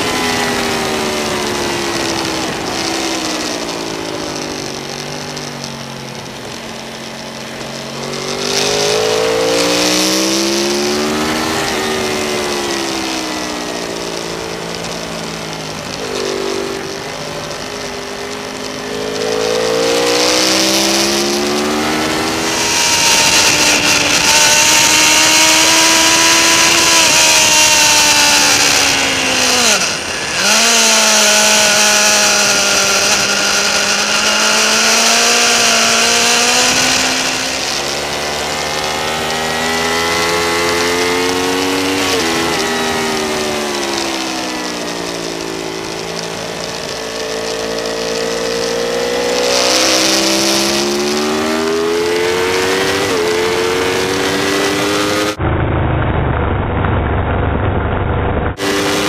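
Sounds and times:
motorcycle engine revving: 0.0s - 59.0s
wind rushing: 19.0s - 38.5s.

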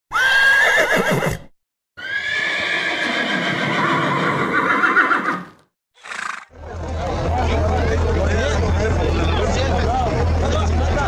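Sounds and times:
horse whinnying: 0.1s - 6.5s.

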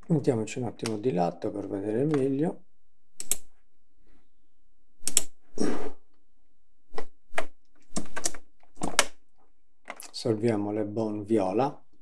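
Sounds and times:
computer keyboard keystrokes: 5.0s - 5.3s.

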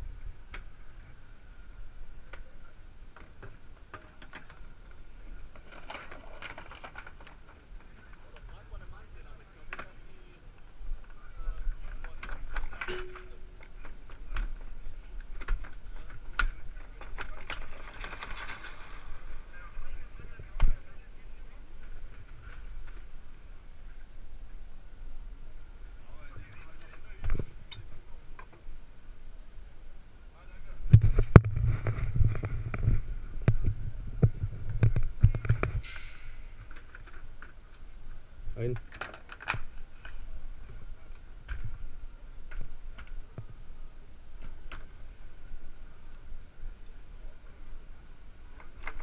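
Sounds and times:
skis knocking and clattering: 3.2s - 8.6s, 11.0s - 19.9s
brief steady tone: 12.8s - 13.6s
brief hiss: 35.8s - 36.5s.

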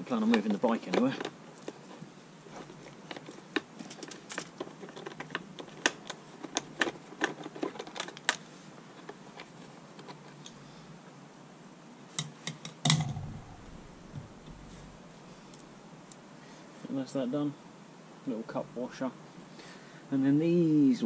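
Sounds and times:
metal bolts and washers clinking: 12.1s - 13.8s.

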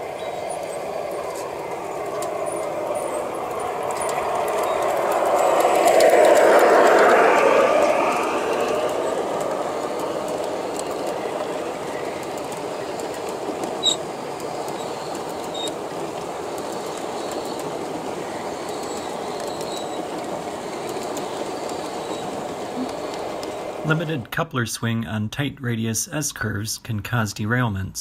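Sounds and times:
metal wheels rolling on rail: 0.0s - 24.3s
high squeak: 13.8s - 14.0s.

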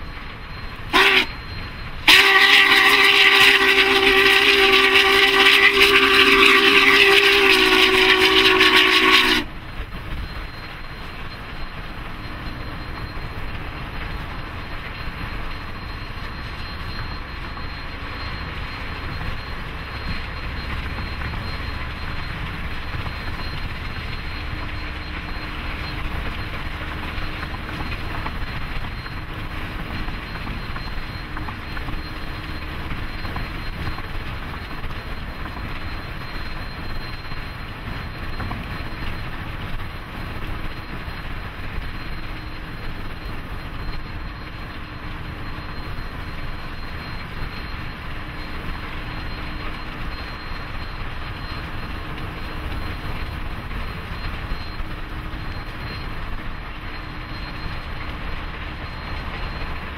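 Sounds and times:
train rumbling past: 0.0s - 59.9s
steam whistle blasts: 0.9s - 9.5s.

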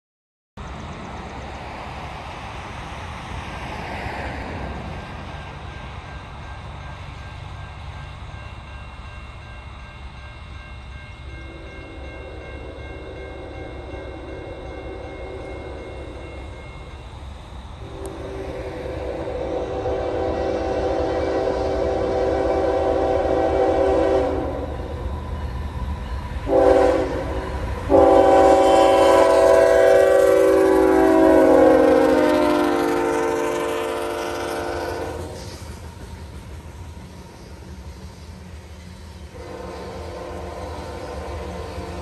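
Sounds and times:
train low rumble: 0.6s - 42.0s
crossing bell ringing: 4.8s - 19.2s, 21.1s - 30.2s
locomotive horn chord: 17.8s - 24.9s, 26.4s - 35.4s, 39.3s - 42.0s.

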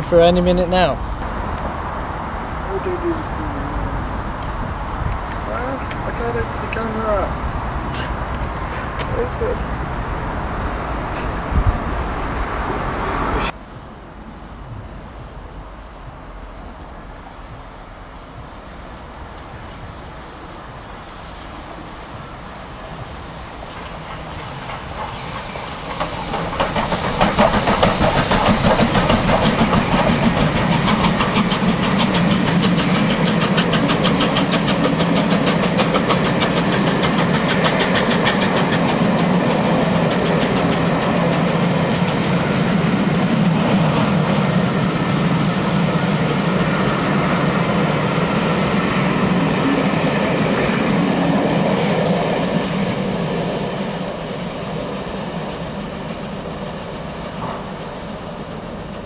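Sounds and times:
steam locomotive running: 0.0s - 59.0s
coaches clattering over rail joints: 23.7s - 42.8s.

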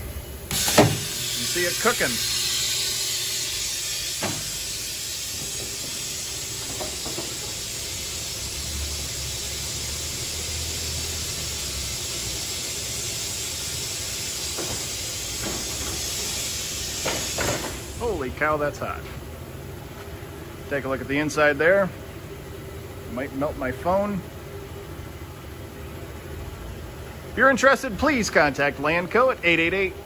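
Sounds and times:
air hissing from door mechanism: 0.5s - 18.2s.

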